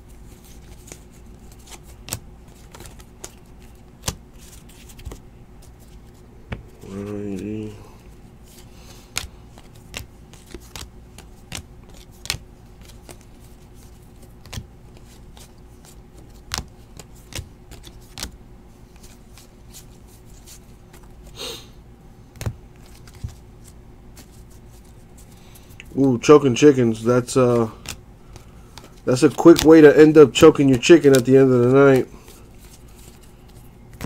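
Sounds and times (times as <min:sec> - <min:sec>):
faint steady hum: 0:00.0 - 0:34.0
card rustle: 0:00.1 - 0:21.3, 0:22.4 - 0:34.0
trading cards clicking and snapping: 0:00.4 - 0:05.8, 0:08.5 - 0:18.4, 0:22.3 - 0:24.4, 0:27.5 - 0:34.0.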